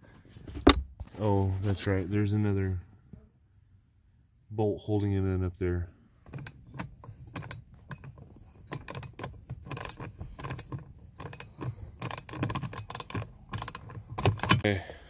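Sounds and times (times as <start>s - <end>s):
socket ratchet clicking: 6.3s - 14.6s.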